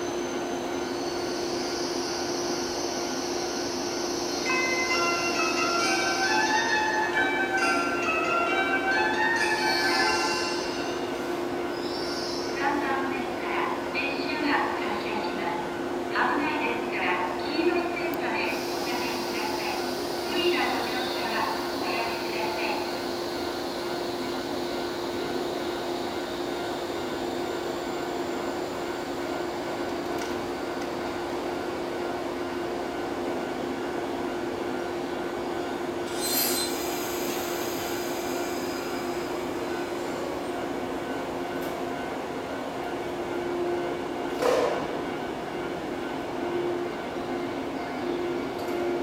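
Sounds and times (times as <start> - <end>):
electric train humming: 0.0 - 49.0
train thump moving off: 44.3 - 45.0.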